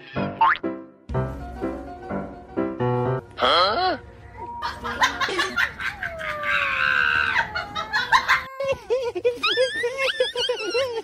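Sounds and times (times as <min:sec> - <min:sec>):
people laughing: 0:04.6 - 0:11.0
cat yowling: 0:05.8 - 0:08.7.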